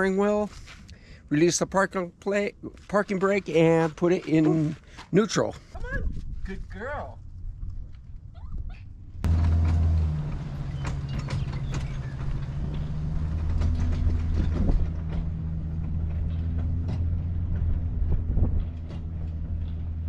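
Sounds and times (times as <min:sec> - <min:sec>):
motorhome engine drone: 0:09.2 - 0:20.0
tow setup clicks and knocks: 0:09.3 - 0:17.8.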